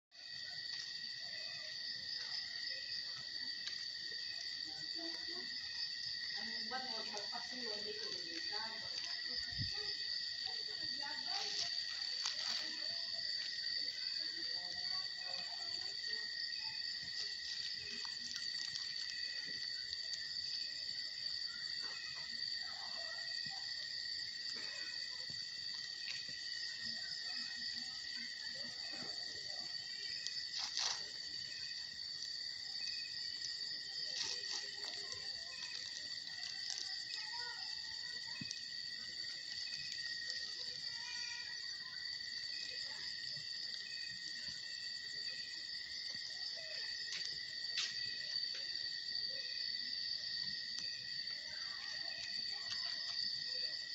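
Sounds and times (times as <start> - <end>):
insects trilling: 0.1 - 53.9.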